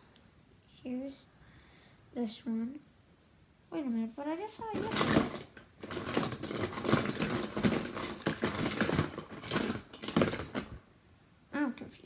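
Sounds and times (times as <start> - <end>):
plastic toys clattering and rustling: 4.5 - 10.8.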